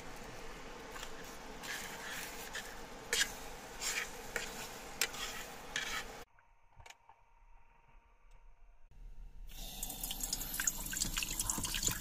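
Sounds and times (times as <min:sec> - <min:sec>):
steady electrical hum: 0:00.0 - 0:06.3, 0:07.4 - 0:12.0
metal spoon scraping a pan: 0:01.0 - 0:06.2.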